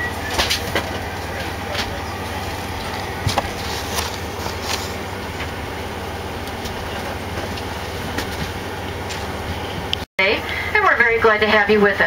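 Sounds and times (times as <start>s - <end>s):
airplane cabin engine drone: 0.0s - 12.0s
paper rustling: 2.9s - 5.1s.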